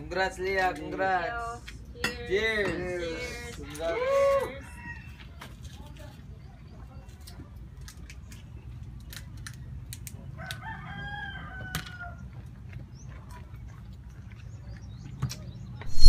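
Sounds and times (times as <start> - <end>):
rooster crowing: 10.6 - 12.1.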